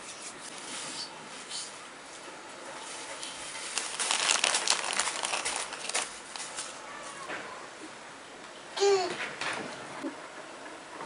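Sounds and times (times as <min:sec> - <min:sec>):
sugar sprinkles rattling: 0:03.5 - 0:06.8.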